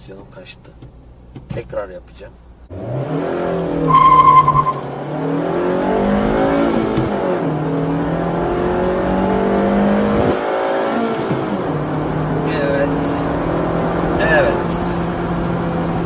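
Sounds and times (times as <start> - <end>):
car engine revving: 2.7 - 14.2
tyre squeal: 3.9 - 5.1.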